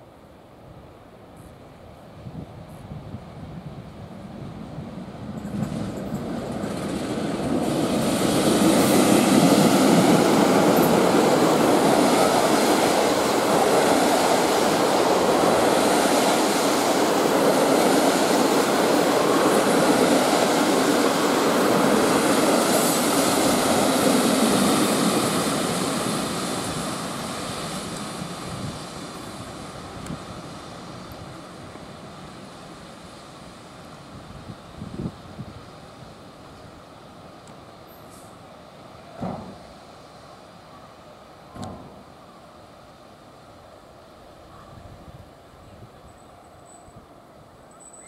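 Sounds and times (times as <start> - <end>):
diesel locomotive engine: 2.1 - 48.0
train wheels rolling on track: 2.6 - 40.5.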